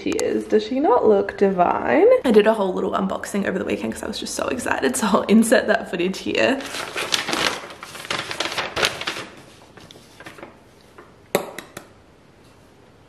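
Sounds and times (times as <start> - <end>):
paper receipt rustling: 6.0 - 11.2.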